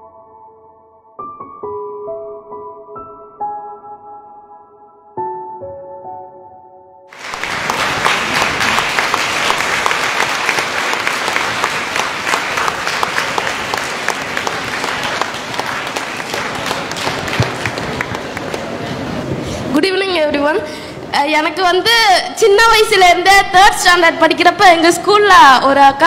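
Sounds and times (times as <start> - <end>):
audience applauding: 7.1 - 19.3.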